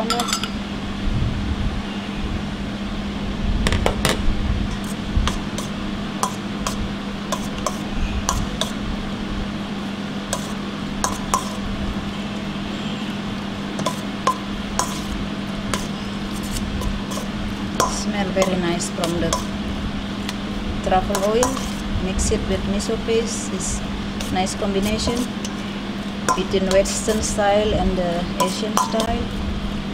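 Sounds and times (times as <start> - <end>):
clinks on a metal bowl: 0.0 - 0.6, 17.1 - 19.5, 21.1 - 21.8, 26.3 - 27.1, 28.4 - 29.2
steady low hum: 0.0 - 29.9.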